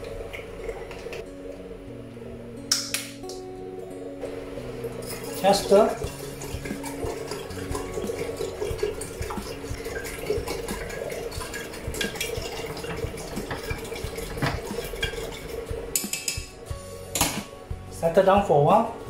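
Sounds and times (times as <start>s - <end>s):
stirrer swirling in water: 5.0s - 16.0s.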